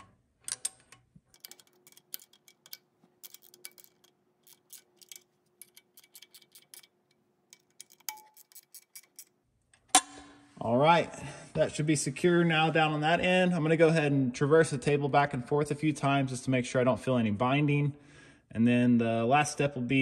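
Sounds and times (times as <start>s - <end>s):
faint metal clicks: 0.0s - 9.9s.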